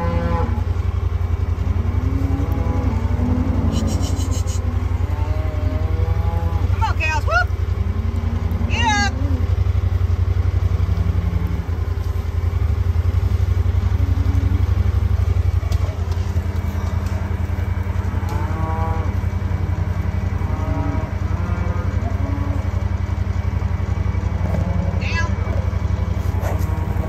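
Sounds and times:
cattle mooing: 0.0s - 27.0s
small vehicle engine running: 0.0s - 27.0s.

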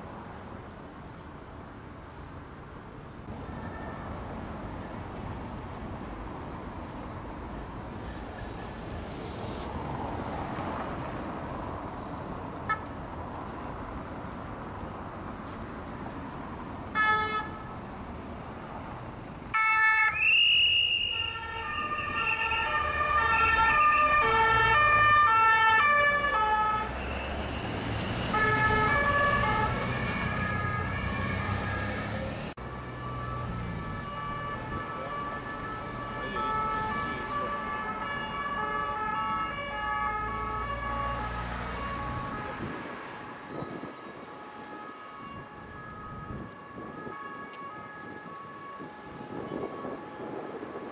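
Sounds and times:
road traffic passing: 0.0s - 50.9s
police sirens two-tone: 43.5s - 50.9s.

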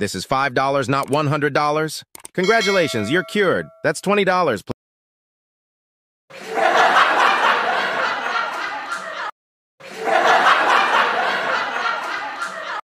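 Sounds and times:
canned audience laughter: 6.3s - 12.8s.

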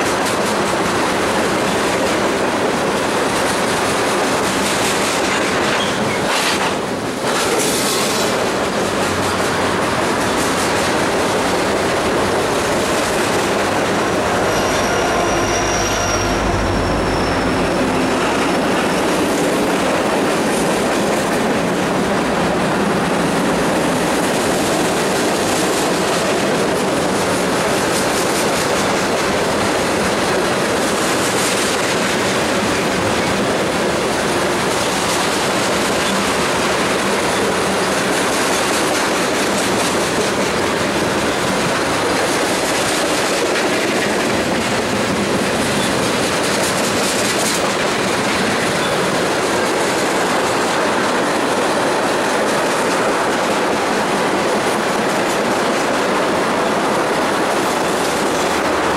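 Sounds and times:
train wheels clattering on rails: 0.0s - 58.9s
faint wheel squeal: 14.3s - 17.8s.

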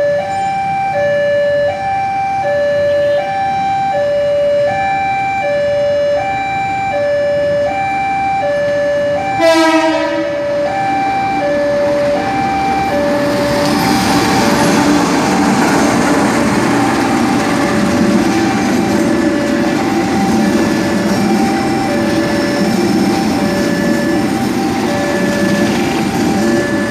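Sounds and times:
level crossing two-tone alarm: 0.0s - 26.9s
train rolling across crossing: 0.0s - 26.9s
train horn: 9.3s - 10.6s.

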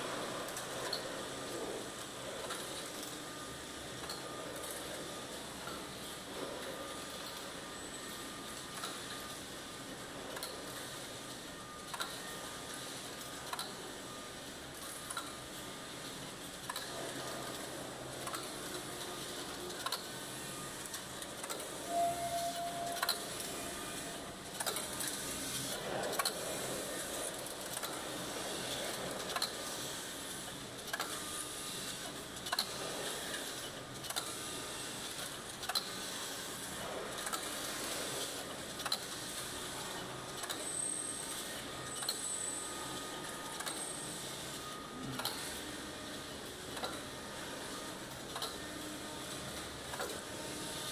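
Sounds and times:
sharp machine clicks: 22.6s - 26.4s, 28.9s - 39.6s, 40.4s - 42.4s, 43.5s - 44.6s.

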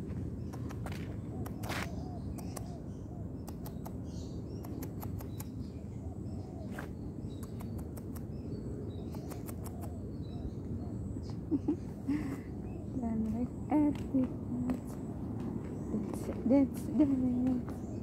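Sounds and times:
footsteps on a path: 0.0s - 2.1s, 13.0s - 18.0s
small birds chirping: 0.0s - 18.0s.

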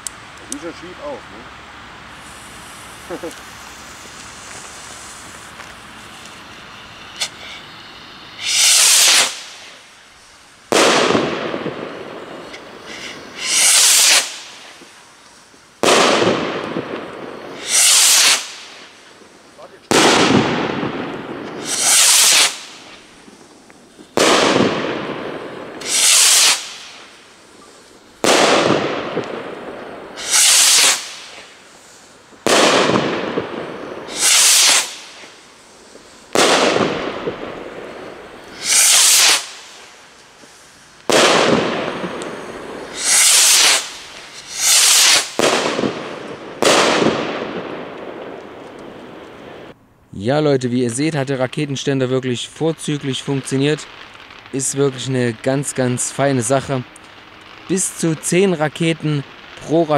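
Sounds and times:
firework rocket hissing: 0.1s - 49.8s, 53.0s - 59.9s
firework bangs echoing: 2.1s - 15.2s, 15.8s - 49.8s.

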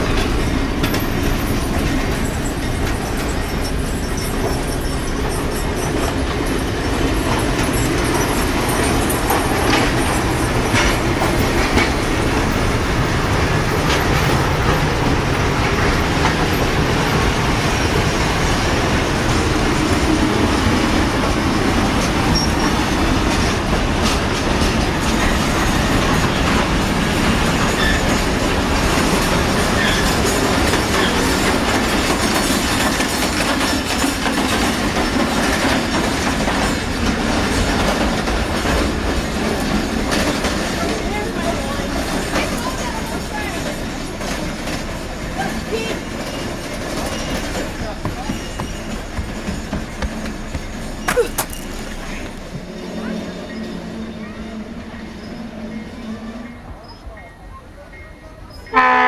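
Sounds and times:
wheels clicking over rail joints: 0.0s - 53.2s
train wheels rumbling on rail: 0.0s - 59.0s
wheel squeals: 0.3s - 18.8s, 22.0s - 23.0s, 27.4s - 35.6s, 39.2s - 57.4s.

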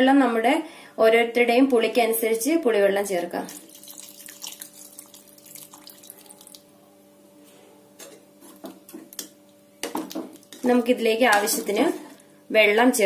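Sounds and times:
liquid trickling into a pot: 3.5s - 6.7s.

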